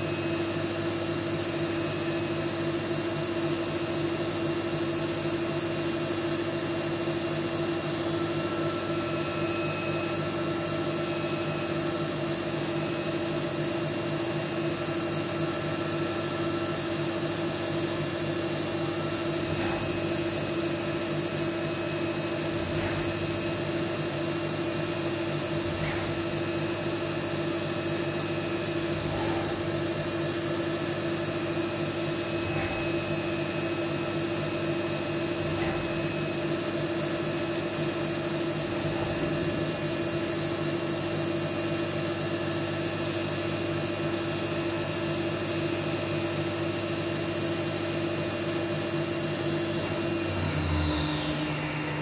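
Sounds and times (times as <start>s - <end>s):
milling machine spindle whine: 0.0s - 52.0s
end mill cutting metal: 27.7s - 40.7s.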